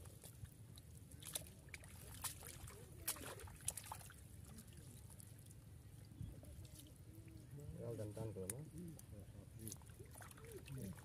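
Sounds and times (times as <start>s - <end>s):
shallow water splashing and trickling: 0.0s - 11.0s.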